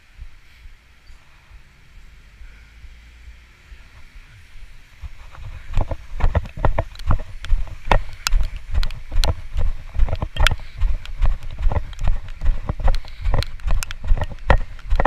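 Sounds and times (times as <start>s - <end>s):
low wind rumble: 0.0s - 15.0s
camera knocking: 5.0s - 15.0s
footsteps on wet stone: 5.0s - 15.0s.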